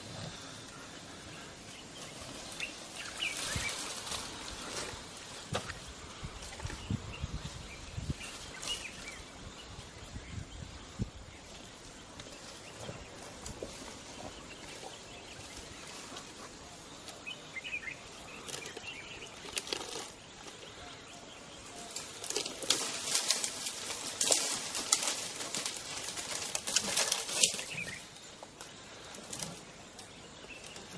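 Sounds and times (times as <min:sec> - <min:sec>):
rustling leaves: 0:00.0 - 0:30.9
twigs snapping: 0:21.9 - 0:30.9.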